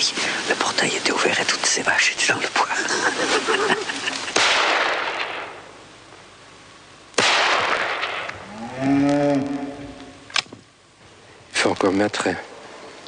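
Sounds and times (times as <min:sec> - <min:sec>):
shotgun shots: 0:04.3 - 0:05.6, 0:07.2 - 0:08.3.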